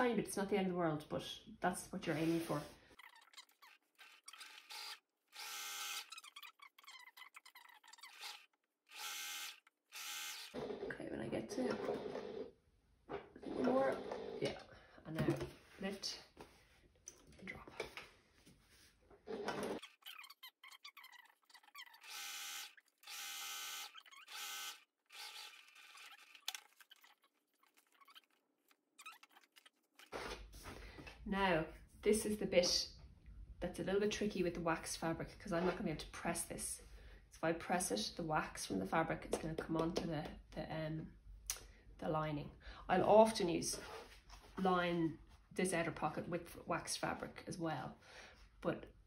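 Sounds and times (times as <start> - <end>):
sewing machine stitching: 11.6 - 12.5
sewing machine motor hum: 22.0 - 26.4.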